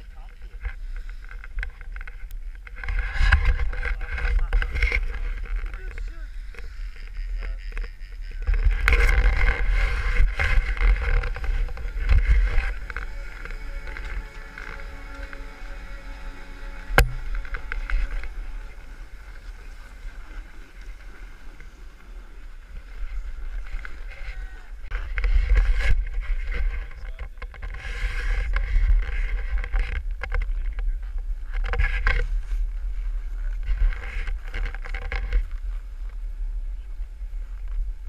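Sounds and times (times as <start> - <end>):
wind rumbling on microphone: 0.0 - 38.0
snowboards scraping on snow: 8.7 - 26.8.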